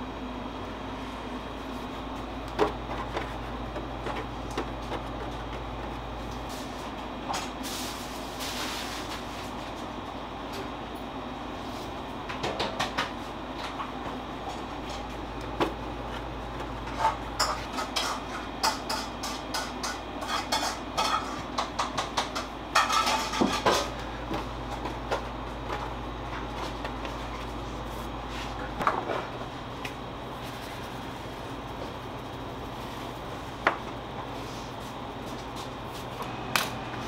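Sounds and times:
machine hum: 0:00.0 - 0:37.0
metal kitchen tools clattering: 0:16.9 - 0:24.0.

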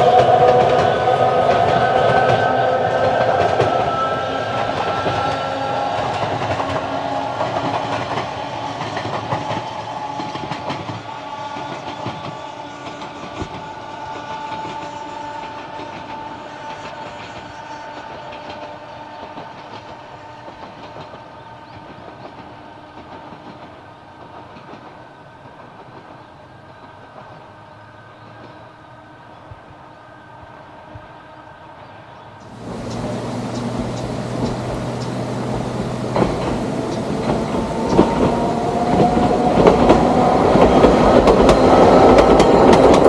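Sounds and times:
train wheels clattering over rails: 0:00.0 - 0:27.6, 0:32.4 - 0:43.0.

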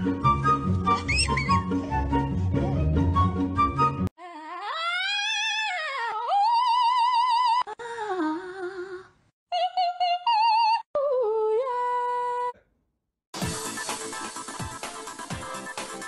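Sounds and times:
high wordless singing voice: 0:04.2 - 0:12.6.

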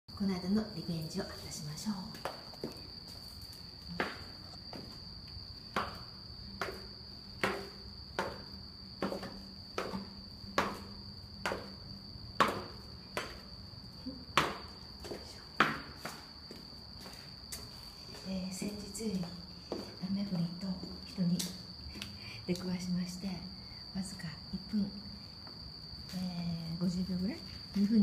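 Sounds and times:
high-pitched insect trill: 0:00.1 - 0:28.0
footsteps on concrete stairs: 0:02.1 - 0:13.6, 0:14.3 - 0:22.1.

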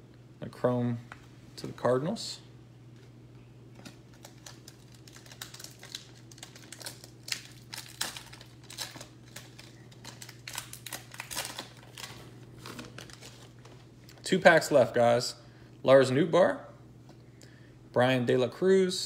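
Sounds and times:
foil wrapper tearing and crinkling: 0:03.8 - 0:13.7.

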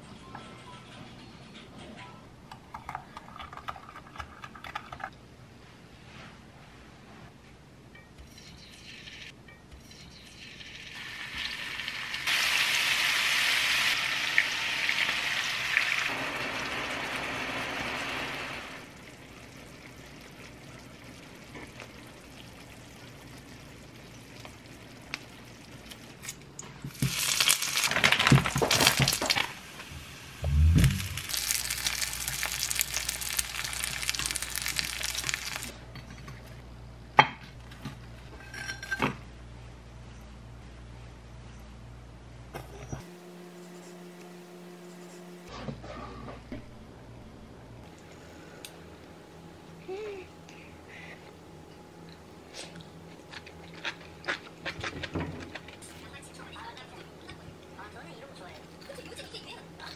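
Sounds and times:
food sizzling in hot oil: 0:10.6 - 0:20.0, 0:26.9 - 0:35.7
loud low thump: 0:30.4 - 0:31.2.

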